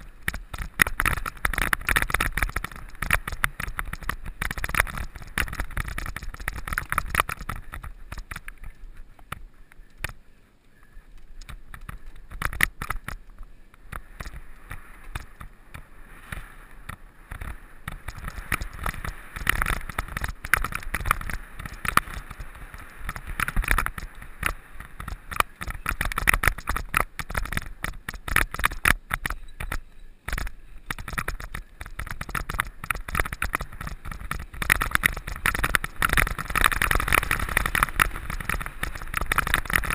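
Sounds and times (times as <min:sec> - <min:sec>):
wind rumble on microphone: 0:00.0 - 0:10.2, 0:10.8 - 0:39.9
mountain bike rattling: 0:00.0 - 0:39.9
tyre noise: 0:00.0 - 0:39.9.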